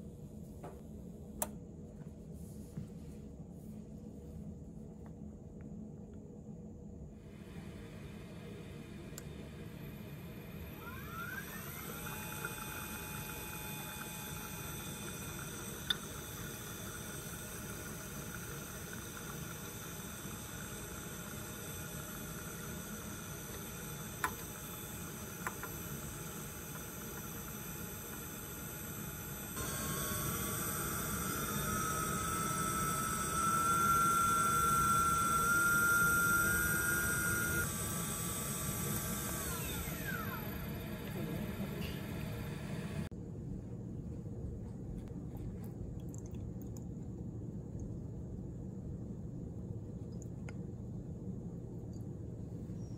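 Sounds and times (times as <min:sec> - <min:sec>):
mixer motor whining: 0:07.3 - 0:43.1.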